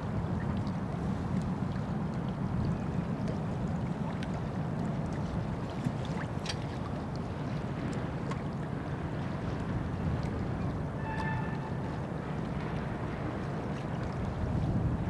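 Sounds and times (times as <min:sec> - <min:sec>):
wind on microphone: 0:14.0 - 0:15.0.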